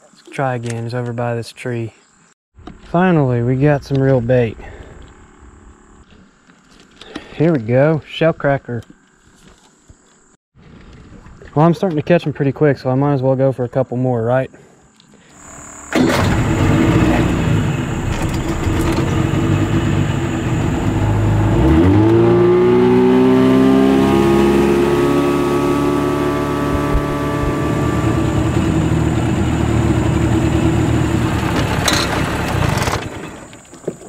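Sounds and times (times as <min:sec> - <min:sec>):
outboard motor running: 0:15.3 - 0:34.0.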